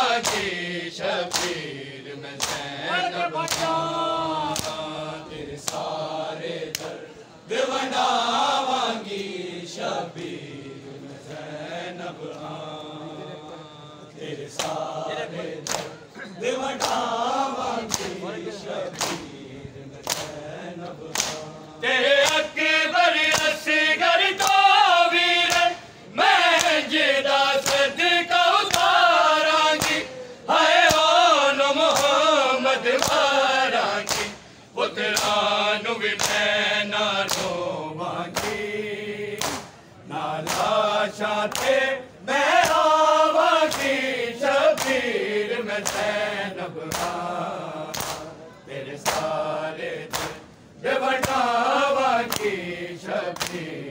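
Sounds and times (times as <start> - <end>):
men chanting a lament: 0.0 - 53.9
hands slapping bare chests: 0.2 - 0.6, 1.3 - 1.7, 2.3 - 2.8, 3.4 - 3.9, 4.5 - 4.9, 5.6 - 6.0, 6.6 - 7.0, 14.5 - 14.9, 15.6 - 16.0, 16.7 - 17.2, 17.8 - 18.2, 18.9 - 19.4, 20.0 - 21.6, 22.2 - 22.5, 23.3 - 23.6, 24.4 - 24.6, 25.4 - 25.8, 26.5 - 26.9, 27.5 - 28.0, 28.6 - 30.2, 30.8 - 31.2, 31.9 - 32.2, 32.9 - 33.4, 34.0 - 34.4, 35.0 - 35.6, 36.2 - 36.5, 37.2 - 37.6, 38.3 - 38.6, 39.4 - 39.8, 40.4 - 40.9, 41.5 - 41.9, 42.5 - 43.0, 43.6 - 45.2, 45.8 - 46.2, 46.9 - 47.2, 47.8 - 48.4, 49.0 - 49.4, 50.1 - 50.4, 51.1 - 51.5, 52.2 - 52.6, 53.3 - 53.7.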